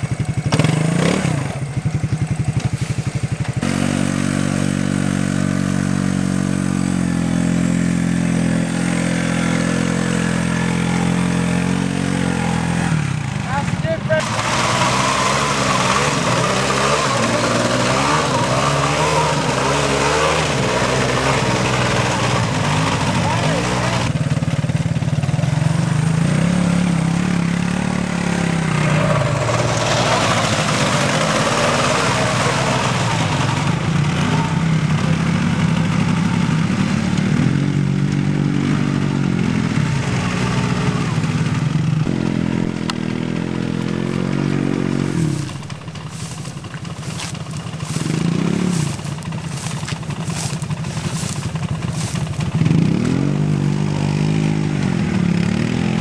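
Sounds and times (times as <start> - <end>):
atv engines revving: 0.0 - 56.0
wheels spattering mud and water: 14.2 - 24.0, 29.0 - 34.2, 45.4 - 55.0.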